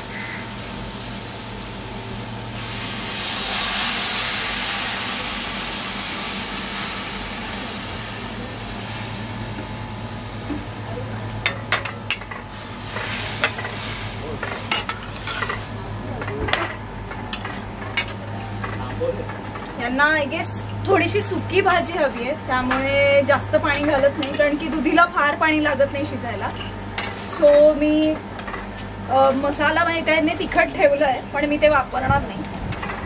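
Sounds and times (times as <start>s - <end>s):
water sizzling in hot pan: 0.0s - 10.2s, 12.4s - 15.8s.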